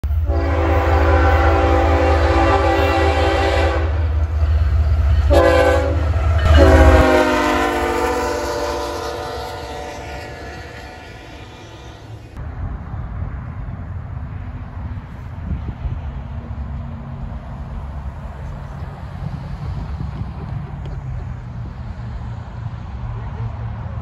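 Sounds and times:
locomotive air horn blasts: 0:00.1 - 0:12.2.

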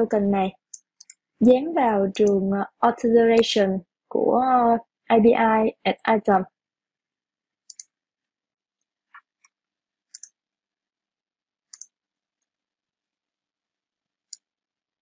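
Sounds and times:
mouse and keyboard clicks: 0:07.7 - 0:07.9, 0:10.1 - 0:10.4, 0:11.7 - 0:12.0.

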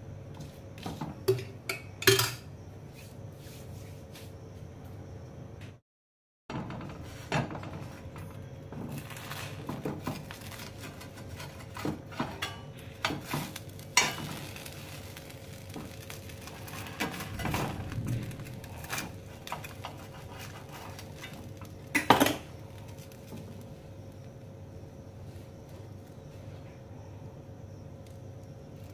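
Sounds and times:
knife scraping and knocking on pan: 0:09.3 - 0:14.7, 0:18.2 - 0:21.4.

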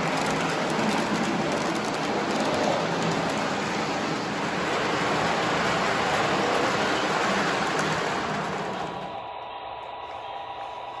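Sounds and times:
model train running on track: 0:00.0 - 0:11.0.

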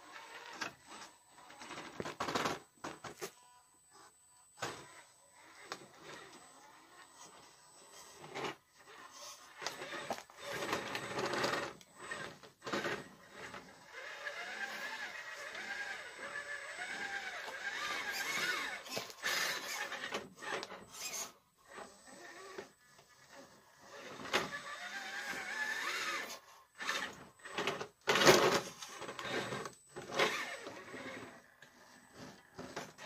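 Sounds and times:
electric motor whining: 0:00.0 - 0:33.0.

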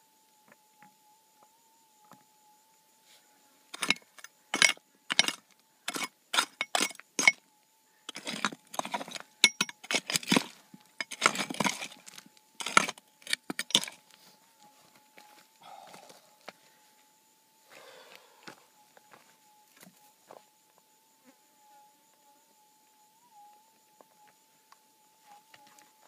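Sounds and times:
pick clinking on stone: 0:03.7 - 0:07.4, 0:08.1 - 0:14.0
pick scraping through gravel: 0:03.8 - 0:07.4, 0:08.1 - 0:14.0.

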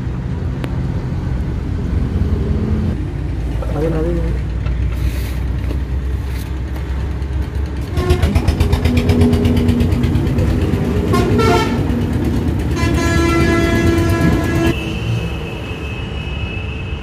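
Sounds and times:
heavy vehicle running: 0:00.0 - 0:17.0
vehicle horn: 0:07.9 - 0:08.6, 0:11.0 - 0:11.9, 0:12.7 - 0:17.0.

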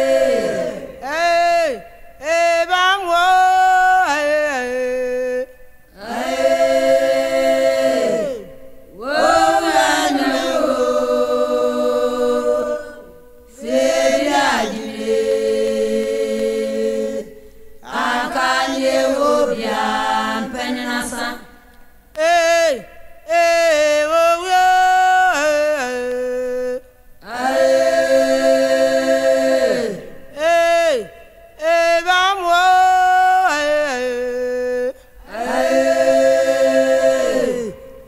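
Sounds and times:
chanted singing: 0:00.0 - 0:38.0.

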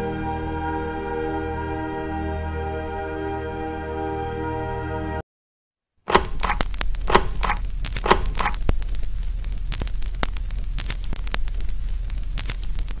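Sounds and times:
short pops: 0:06.1 - 0:08.6
crackling static with clicks: 0:06.5 - 0:13.0.

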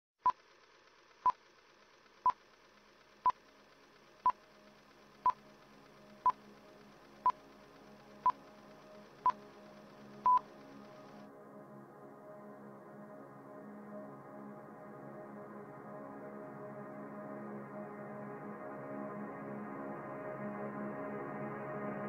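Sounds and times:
short high countdown beeps: 0:10.2 - 0:10.4.

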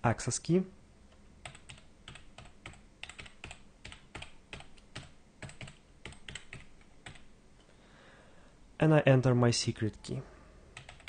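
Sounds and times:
computer keyboard typing: 0:01.4 - 0:07.3, 0:10.8 - 0:11.0.

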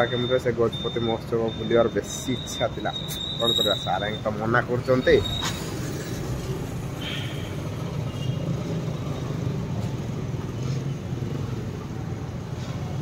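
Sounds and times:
engine and road noise in car: 0:04.9 - 0:13.0.

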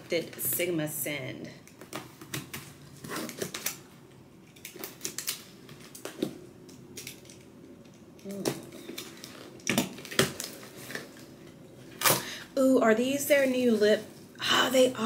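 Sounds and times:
packaging clicks and rustles: 0:01.7 - 0:12.2.

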